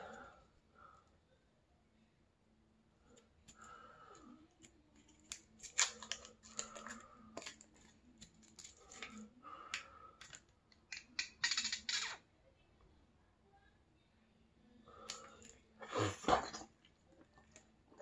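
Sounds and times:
plastic film crinkling: 0:05.0 - 0:09.2.

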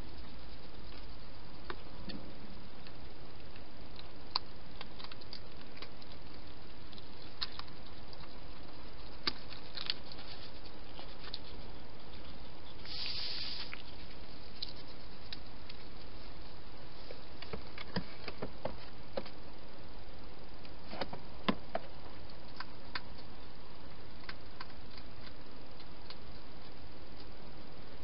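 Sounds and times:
hedgehog feeding clicks and taps: 0:00.0 - 0:02.2, 0:02.8 - 0:13.0, 0:13.7 - 0:16.1, 0:20.6 - 0:23.5, 0:24.1 - 0:27.4
steady hiss: 0:11.6 - 0:17.4.

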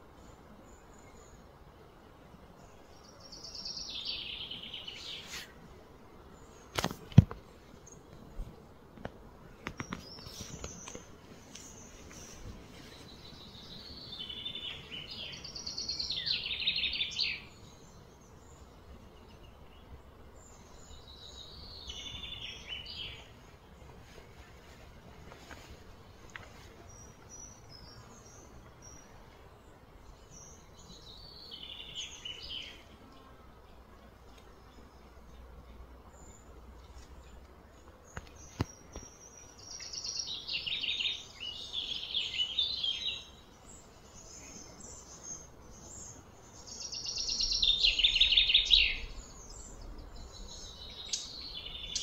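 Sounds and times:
outdoor background noise: 0:00.0 - 0:52.0
songbird trilling: 0:50.2 - 0:52.0.

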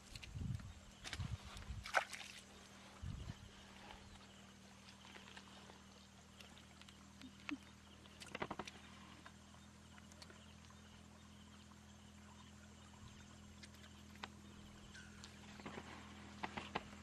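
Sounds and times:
low hum: 0:00.0 - 0:17.0
wet slaps and splashes: 0:01.8 - 0:02.5.

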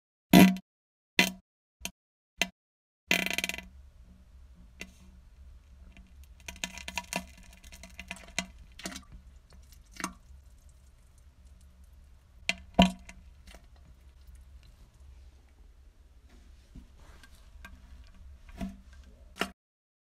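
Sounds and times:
wet squelching and crackling: 0:06.2 - 0:15.6.

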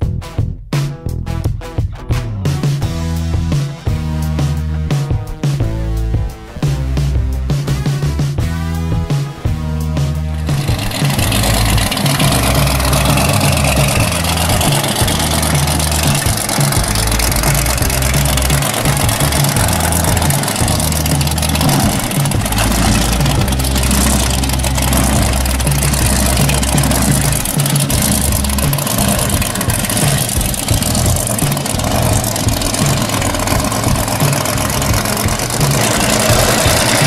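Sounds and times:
car engine idling: 0:10.0 - 0:37.0.

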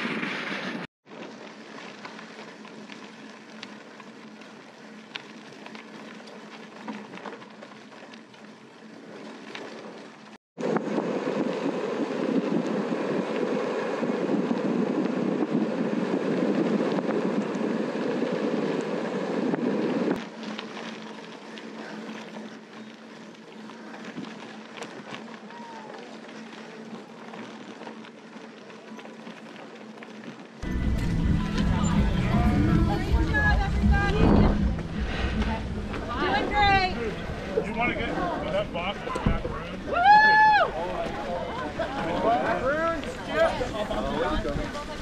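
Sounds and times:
wind rushing over microphone: 0:10.6 - 0:20.2, 0:30.6 - 0:45.0.

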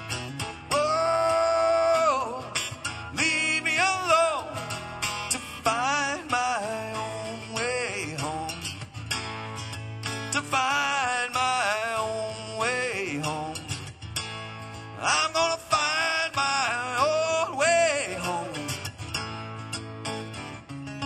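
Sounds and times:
strummed acoustic guitar: 0:00.0 - 0:21.0
man singing: 0:00.6 - 0:09.1, 0:10.1 - 0:14.0, 0:14.8 - 0:19.0.

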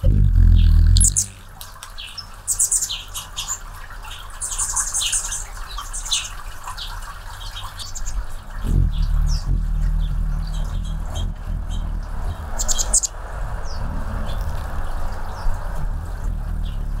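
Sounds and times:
hummingbird wings humming: 0:00.0 - 0:02.8, 0:08.5 - 0:17.0
scratchy bird chatter: 0:00.4 - 0:17.0
high chip calls: 0:10.6 - 0:13.1.

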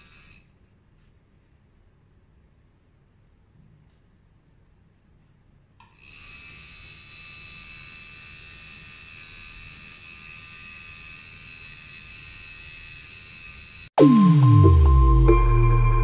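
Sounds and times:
tattoo machine whining: 0:06.0 - 0:13.9.

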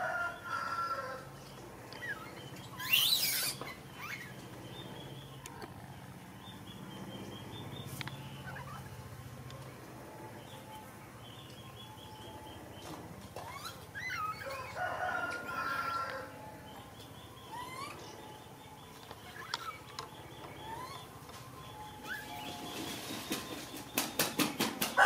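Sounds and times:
rooster crowing: 0:00.0 - 0:01.3, 0:14.1 - 0:16.6
chickens chirping: 0:00.0 - 0:25.0.

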